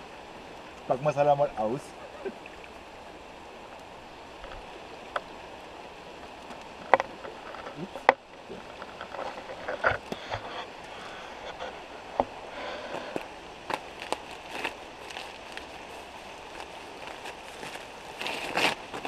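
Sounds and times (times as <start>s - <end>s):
river flowing: 0.0s - 19.0s.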